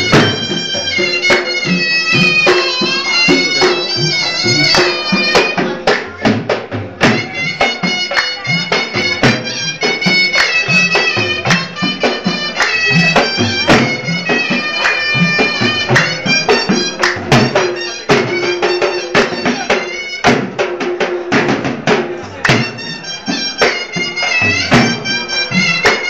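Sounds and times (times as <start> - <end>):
shrill double-reed pipe melody: 0.0 - 5.8, 22.6 - 26.0
hand claps: 0.0 - 20.4, 22.2 - 26.0
sharp drum beats: 0.0 - 26.0.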